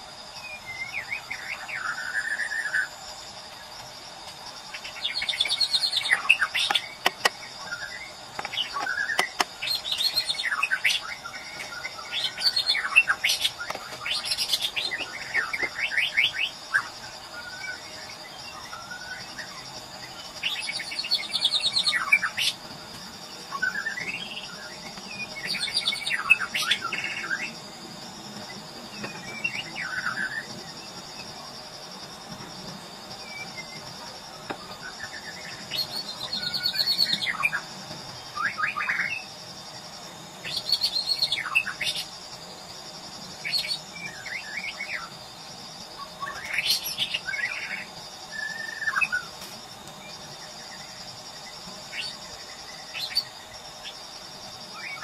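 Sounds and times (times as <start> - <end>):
high insect drone: 0.0 - 55.0
bird singing whistles and trills: 0.3 - 2.9, 4.8 - 22.6, 23.5 - 27.6, 34.7 - 39.3, 46.0 - 49.3.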